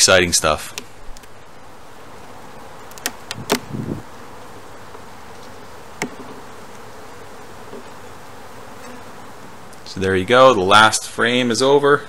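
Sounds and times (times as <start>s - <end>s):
honeybees humming: 0.0s - 12.0s
hive tool clicks and knocks: 2.9s - 3.7s, 6.0s - 6.4s.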